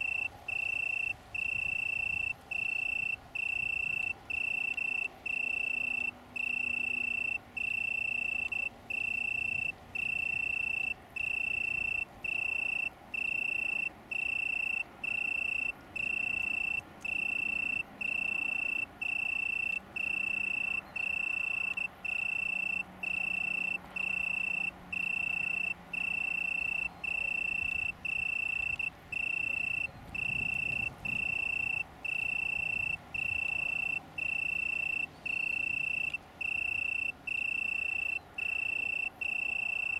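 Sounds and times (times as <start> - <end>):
tree cricket trilling: 0.0 - 39.9.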